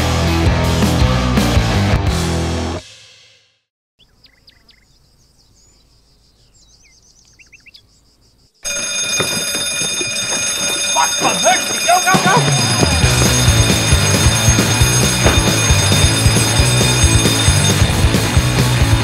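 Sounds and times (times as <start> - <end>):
rock music: 0.0 - 2.8, 11.3 - 19.0
birds chirping: 4.0 - 18.4
loud alarm ringing: 8.6 - 19.0.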